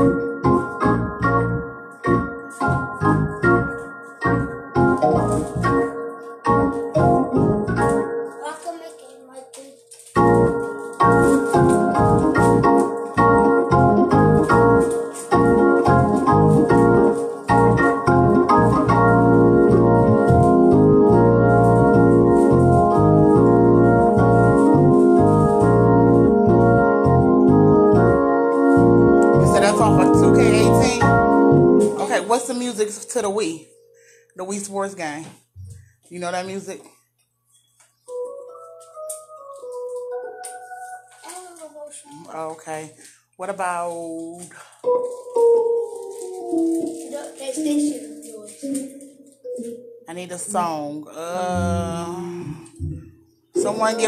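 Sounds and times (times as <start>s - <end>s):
organ chords: 0.0s - 8.5s, 10.0s - 35.0s, 37.5s - 41.2s, 44.8s - 47.2s, 52.5s - 54.0s.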